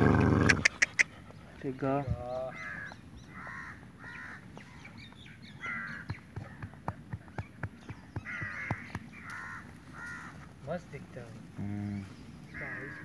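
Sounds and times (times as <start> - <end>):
crows cawing: 2.5 - 6.8, 8.1 - 10.8, 12.5 - 13.0.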